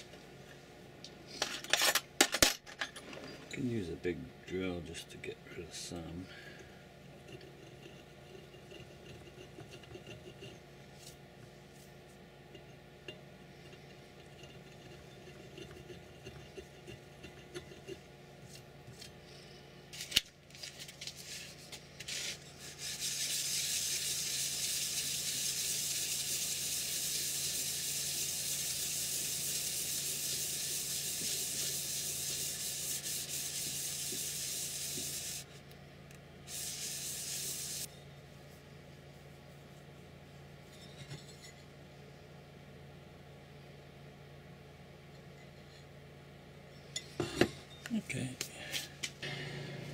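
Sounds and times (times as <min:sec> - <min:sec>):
faint metal scraping: 0:05.7 - 0:19.6, 0:40.6 - 0:41.8.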